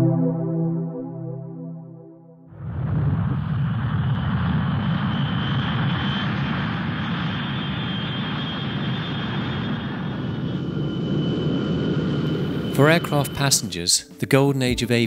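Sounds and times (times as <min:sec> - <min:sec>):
aircraft engine rumble and whine: 0:02.9 - 0:14.1.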